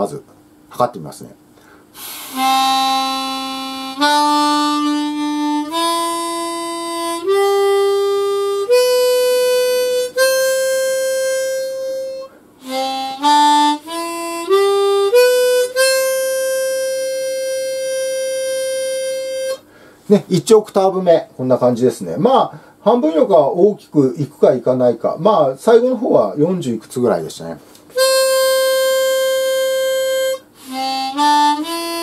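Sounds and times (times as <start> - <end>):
harmonica single notes climbing: 2.0 - 19.7, 27.9 - 32.0.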